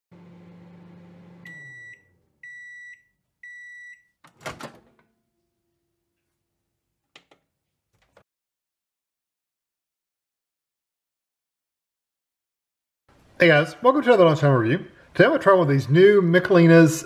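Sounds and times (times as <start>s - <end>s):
microwave oven humming: 0.1s - 2.7s
microwave door opening: 4.2s - 5.1s.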